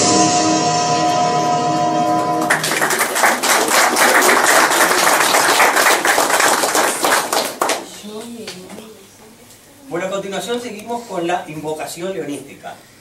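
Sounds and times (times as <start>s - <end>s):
music held chord: 0.0s - 4.0s
people applauding: 2.4s - 8.7s.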